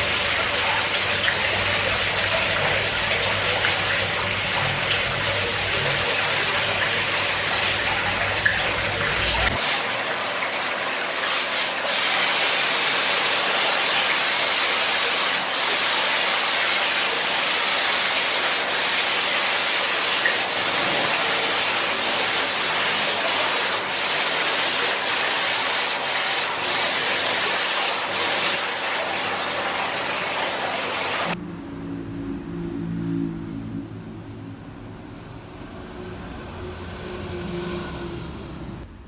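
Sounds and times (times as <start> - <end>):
spray gun hissing: 9.2 - 9.9, 11.2 - 28.6.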